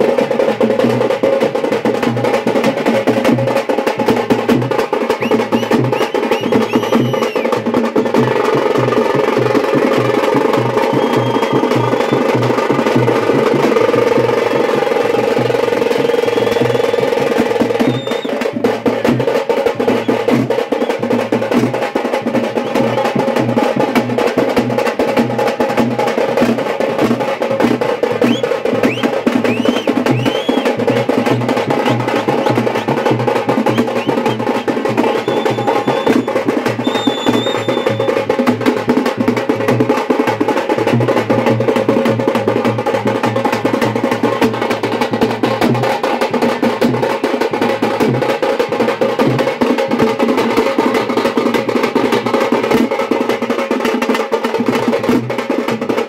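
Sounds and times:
large drums beaten fast: 0.0 - 56.0
high whistling notes: 5.2 - 7.6, 10.8 - 12.3, 17.8 - 18.4, 28.2 - 31.0, 33.6 - 38.1.

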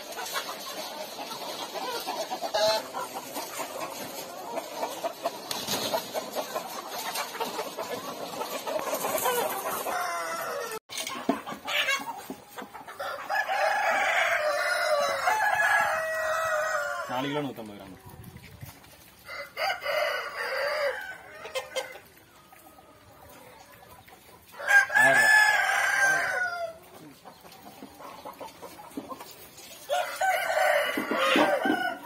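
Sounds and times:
chickens clucking: 0.0 - 32.0
rooster crowing: 9.9 - 10.8, 13.0 - 17.1, 19.3 - 21.6, 24.6 - 26.8, 29.9 - 32.0.

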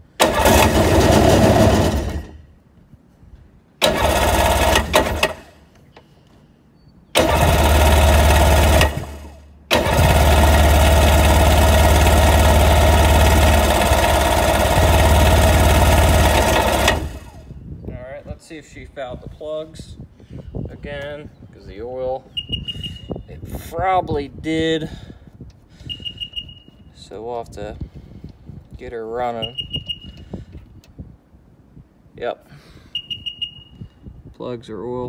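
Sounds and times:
two-stroke engine starting: 0.2 - 2.4, 3.8 - 5.6, 7.2 - 17.5.

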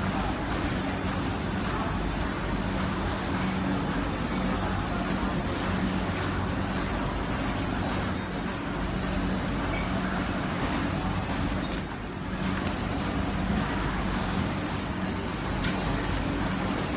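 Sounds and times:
factory machinery hiss and hum: 0.0 - 16.9.

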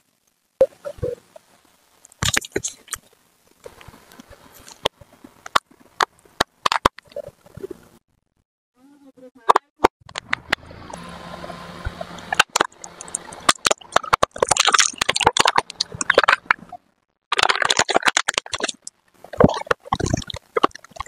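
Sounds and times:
car tyre crushing objects: 10.0 - 16.6.

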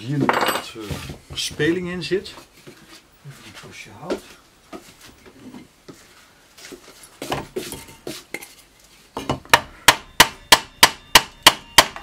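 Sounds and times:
hammer blows on wood: 9.5 - 12.0.

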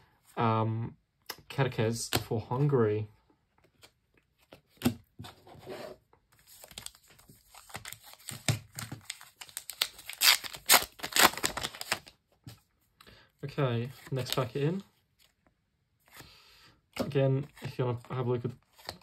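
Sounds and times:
foil wrapper crinkling and tearing: 6.5 - 12.2.

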